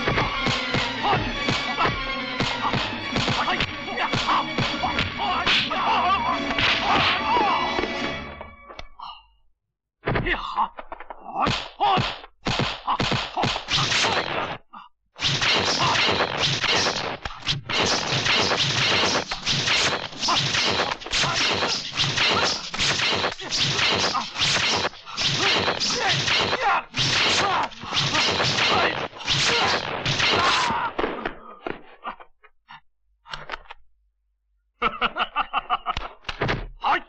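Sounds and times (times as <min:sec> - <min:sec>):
punch and kick impacts: 0:00.0 - 0:05.7, 0:11.4 - 0:14.6, 0:15.2 - 0:31.2.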